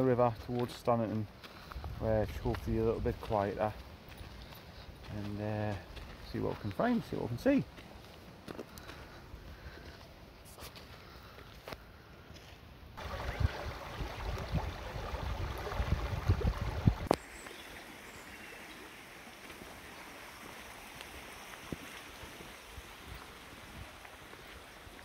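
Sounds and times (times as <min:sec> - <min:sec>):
faint outdoor hiss: 0:00.0 - 0:25.0
gusty low rumbling: 0:13.0 - 0:17.1
river water rushing over stones: 0:13.0 - 0:25.0.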